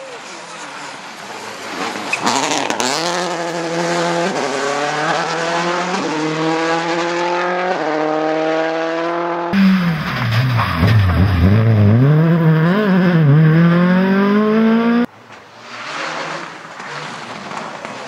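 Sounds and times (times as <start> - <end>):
rally car engine accelerating: 0.7 - 15.1
second rally car engine revving: 1.9 - 15.1.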